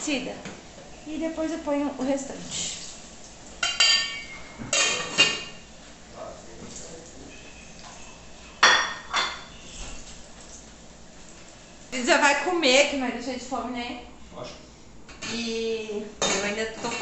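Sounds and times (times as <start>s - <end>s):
cookware clinking: 3.6s - 5.6s, 8.6s - 9.5s, 16.2s - 17.0s.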